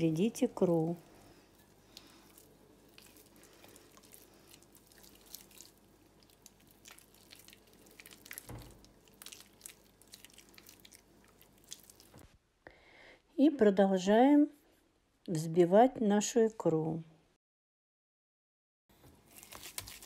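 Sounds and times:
wet squishing of fish roe: 0.1 - 12.4, 19.0 - 20.0.

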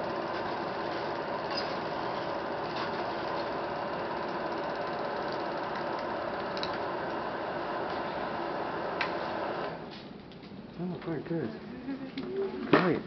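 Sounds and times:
film projector whirring: 0.0 - 10.0.

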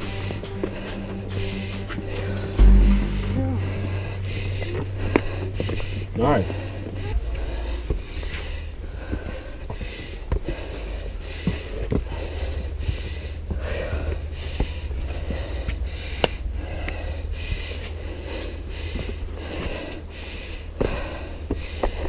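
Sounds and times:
low rumble: 0.0 - 8.1
hard rapid breathing: 0.0 - 22.0.

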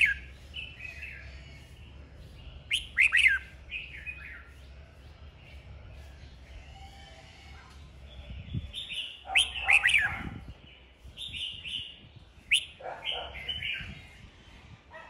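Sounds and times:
bird singing whistled phrases: 0.0 - 0.3, 2.7 - 3.5, 8.9 - 10.2, 12.5 - 12.8.

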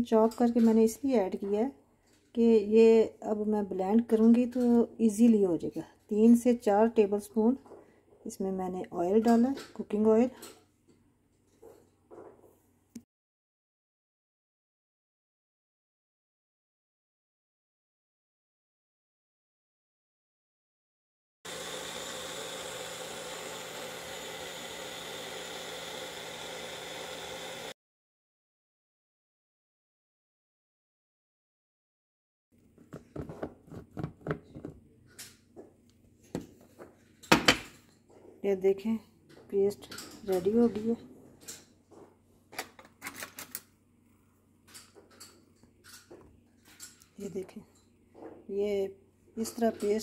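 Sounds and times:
blender motor whirring: 21.5 - 27.8.

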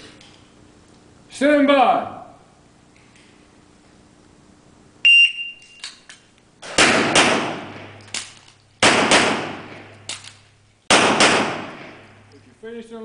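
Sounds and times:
shot timer beep: 5.0 - 5.9
pistol reload clack: 5.6 - 10.5
pistol shots echoing: 6.6 - 10.3, 10.9 - 12.3.

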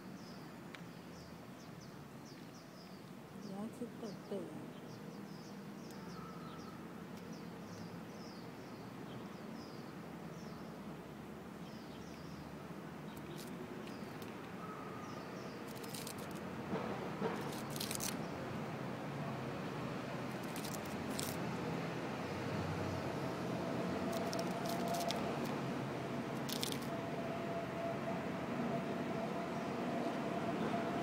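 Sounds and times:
street background noise: 0.0 - 31.0
small birds chirping: 0.2 - 10.7, 11.6 - 16.4, 17.3 - 18.4, 20.3 - 21.4, 24.1 - 25.6, 26.4 - 26.9.

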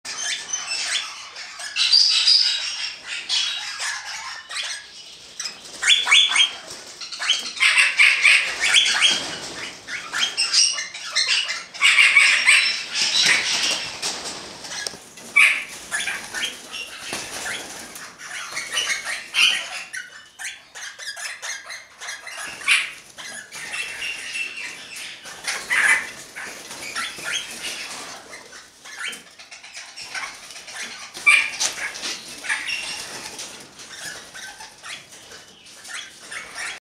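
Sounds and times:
parakeets calling: 0.1 - 36.8
wing flapping: 12.8 - 19.3.

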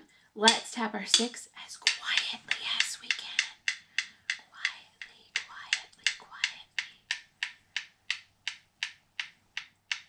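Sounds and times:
wooden rhythm sticks clicking: 0.0 - 10.0.

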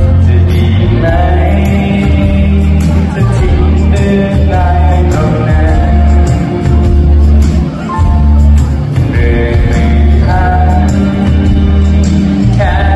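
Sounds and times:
man singing into microphone: 0.0 - 8.1, 8.8 - 12.9
pop backing track with bass: 0.0 - 12.9.

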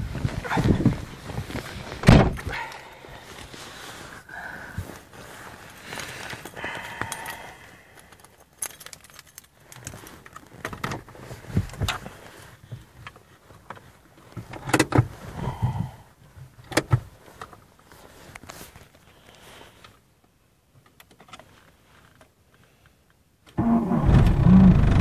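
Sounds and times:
keys jangling: 8.1 - 10.4.

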